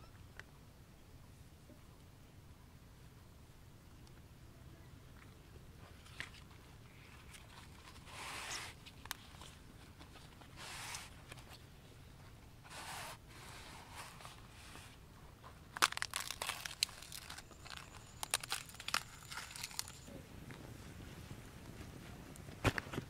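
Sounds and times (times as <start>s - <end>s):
leaf crinkling and crackling: 15.6s - 23.0s.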